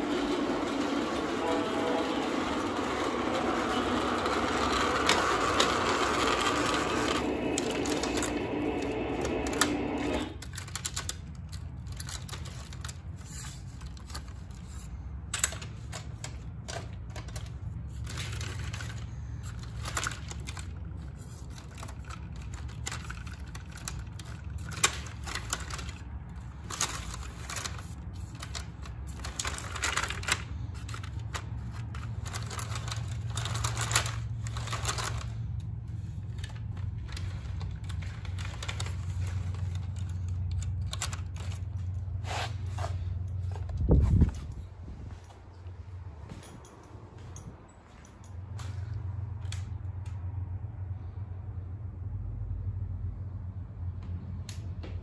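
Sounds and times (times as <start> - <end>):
model trains running on track: 0.0 - 10.4
low hum: 0.0 - 10.7
wheels clicking over rail joints: 0.0 - 45.7.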